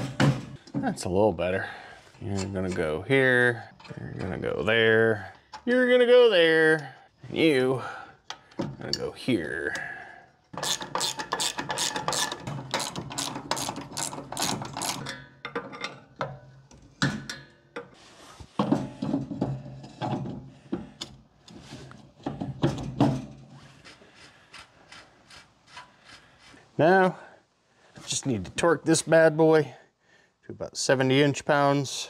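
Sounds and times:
hand ratchet clicking: 0:10.6 - 0:15.1.

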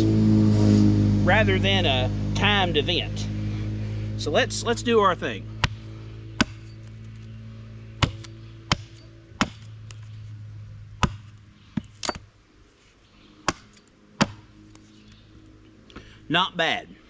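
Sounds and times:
hatchet chopping wood: 0:05.6 - 0:06.9, 0:08.0 - 0:10.1, 0:11.0 - 0:12.3, 0:13.4 - 0:14.8.

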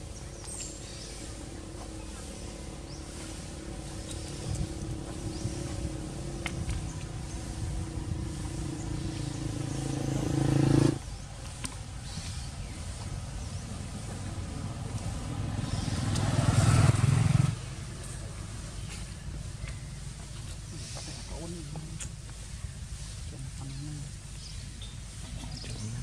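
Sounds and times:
second engine: 0:00.0 - 0:11.6, 0:13.0 - 0:20.0
vehicle engine humming: 0:00.0 - 0:26.0.

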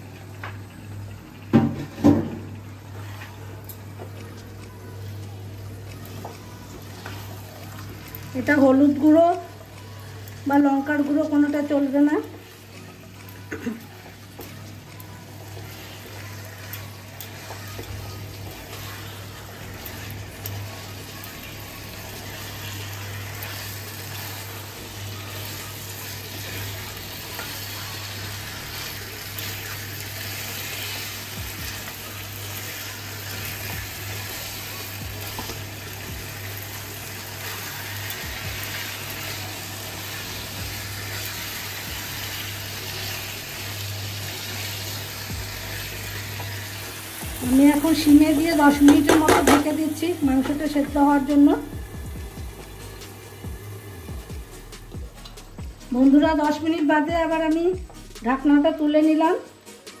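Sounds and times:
chicken sizzling in a pan: 0:00.0 - 0:58.6
spatula stirring: 0:02.9 - 0:49.7.

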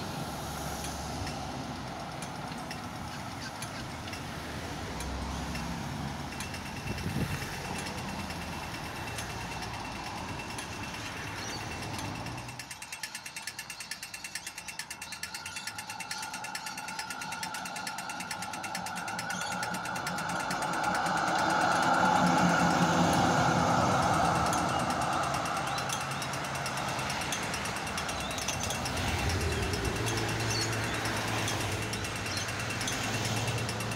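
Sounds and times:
cars passing: 0:00.0 - 0:33.9
crossing signal ticking: 0:00.0 - 0:33.9
faint steady whine: 0:14.4 - 0:33.8.

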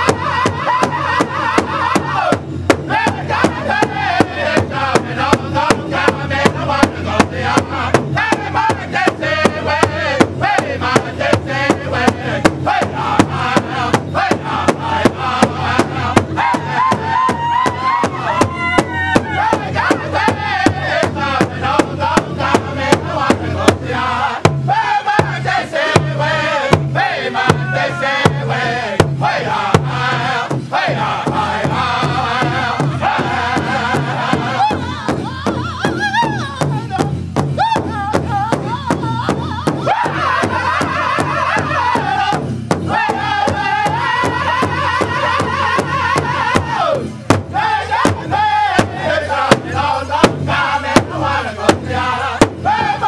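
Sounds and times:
large hide drum beating: 0:00.0 - 0:53.0
men chanting in high voices: 0:00.0 - 0:53.0
high rising cry: 0:16.0 - 0:20.6.

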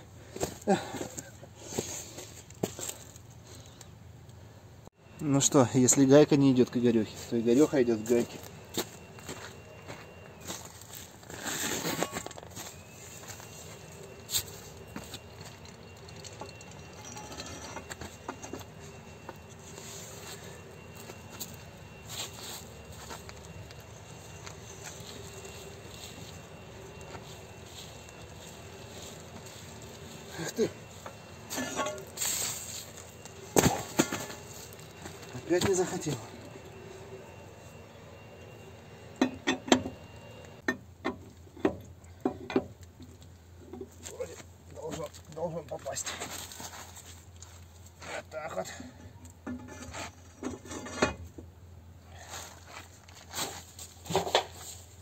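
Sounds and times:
footsteps on dry leaves: 0:07.1 - 0:14.8, 0:24.2 - 0:36.2
metal pipe clicks and knocks: 0:39.2 - 0:39.9.

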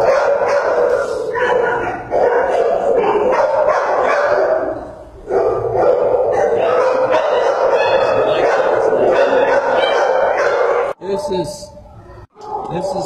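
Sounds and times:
many dogs barking: 0:00.0 - 0:13.0.

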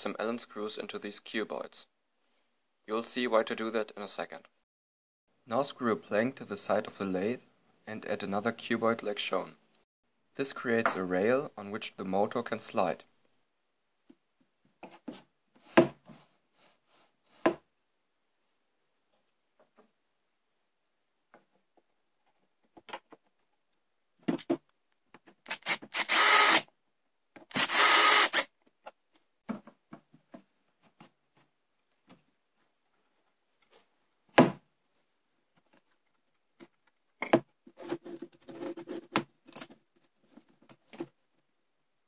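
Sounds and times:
drill driving screws into wood: 0:25.5 - 0:26.7, 0:27.4 - 0:28.5.

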